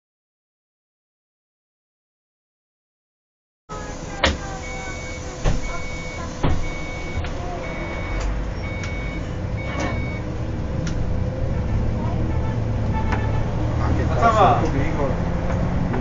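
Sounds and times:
bus engine running: 3.7 - 16.0
road noise: 3.7 - 16.0
short electronic beeps: 4.6 - 10.2.

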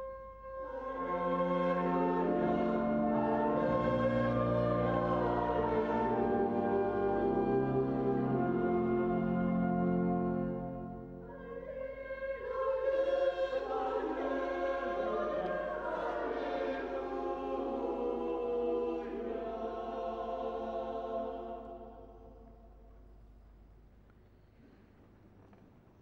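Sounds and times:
organ chord: 0.1 - 11.2
small choir singing: 0.5 - 22.6.

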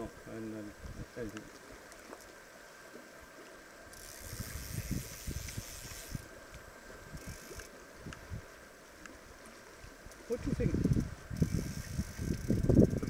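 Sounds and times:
fishing reel ratchet buzzing: 3.9 - 6.3, 7.1 - 7.8, 10.4 - 13.0
low rumbling wind noise: 4.0 - 13.0.

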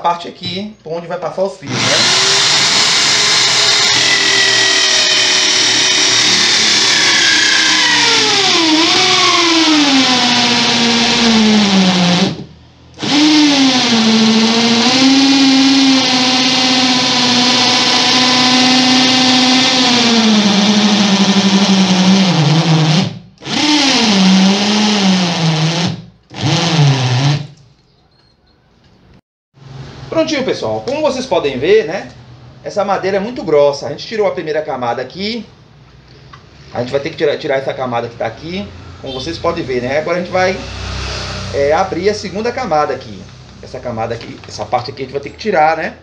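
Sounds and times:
hole saw grinding wood: 1.7 - 12.4
electric drill motor whine: 1.7 - 27.5.

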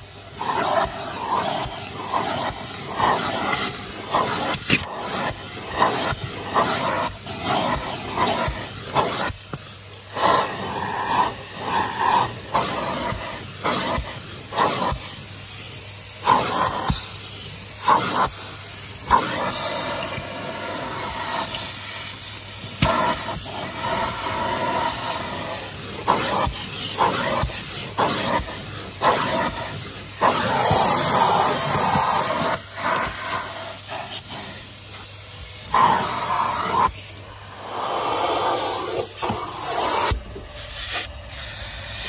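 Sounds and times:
vacuum cleaner rushing hiss: 0.0 - 42.0
vacuum nozzle clicks and scrapes: 0.4 - 15.2, 19.1 - 35.1.

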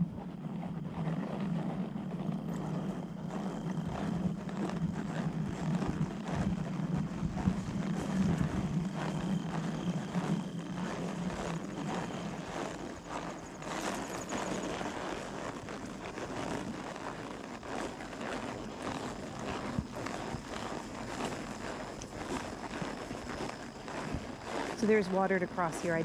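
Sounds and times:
engine drone: 0.0 - 26.0
horse footfalls on a trail: 0.0 - 26.0.

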